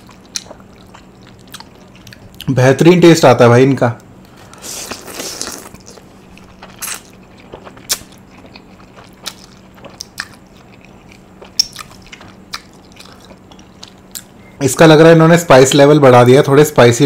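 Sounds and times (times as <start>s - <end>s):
chewing with mouth smacks: 0.0s - 2.5s, 4.2s - 14.4s.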